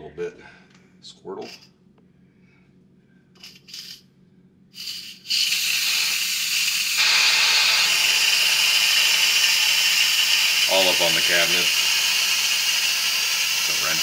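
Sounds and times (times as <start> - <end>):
pressure cooker steam hissing: 4.8 - 14.0
steam valve sputtering: 4.8 - 14.0.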